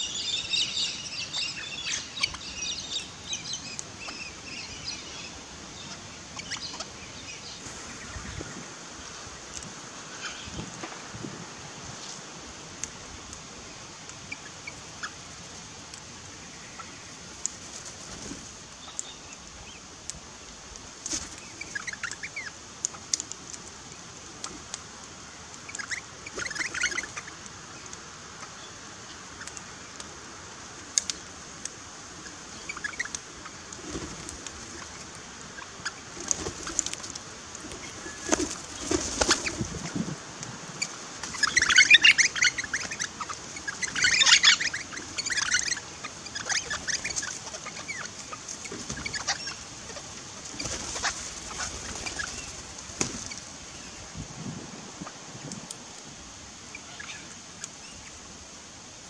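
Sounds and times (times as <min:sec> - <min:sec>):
bird wing flaps: 0:36.2 - 0:40.2, 0:50.5 - 0:53.5
parrots calling: 0:41.3 - 0:52.5.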